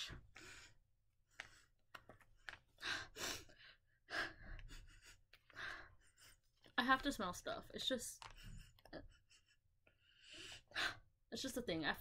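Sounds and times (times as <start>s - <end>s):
breathing in and out: 0.0s - 6.6s, 8.4s - 11.2s.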